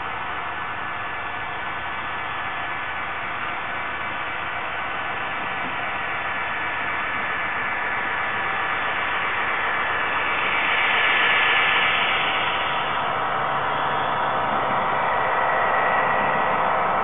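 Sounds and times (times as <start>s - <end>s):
model locomotives running: 0.0s - 17.0s.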